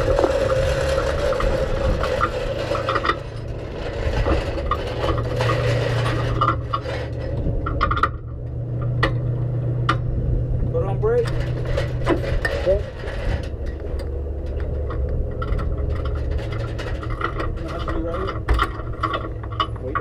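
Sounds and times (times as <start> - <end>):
light clinks and rattles: 11.1 - 20.0.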